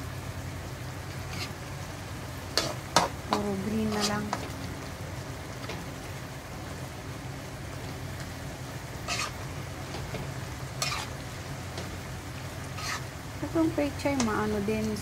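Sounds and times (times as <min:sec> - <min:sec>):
vegetables sizzling in a wok: 0:00.0 - 0:15.0
spatula scraping a pan: 0:01.0 - 0:01.7, 0:02.6 - 0:04.4, 0:09.0 - 0:10.2, 0:10.8 - 0:11.2, 0:12.7 - 0:13.1.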